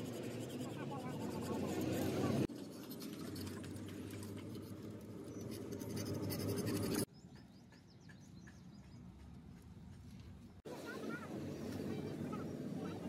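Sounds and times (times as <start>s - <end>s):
quiet scratching: 0.0s - 7.1s.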